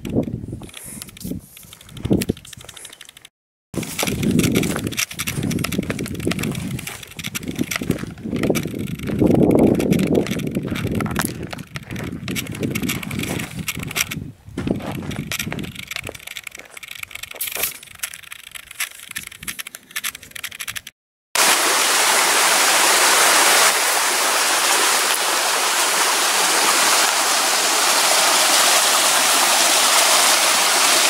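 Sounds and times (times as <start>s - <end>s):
wind buffeting microphone: 0.0s - 2.7s, 3.8s - 19.7s.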